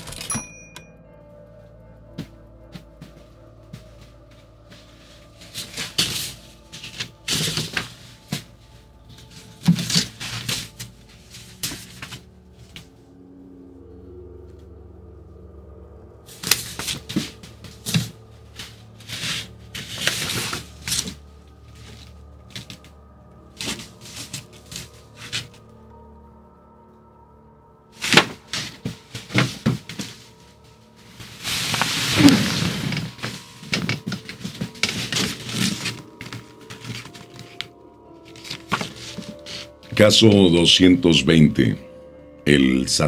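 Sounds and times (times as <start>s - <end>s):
faint background music: 0.0s - 43.0s
paper rustling and tapping: 9.2s - 12.2s, 16.4s - 21.2s, 28.0s - 30.2s, 31.2s - 39.7s.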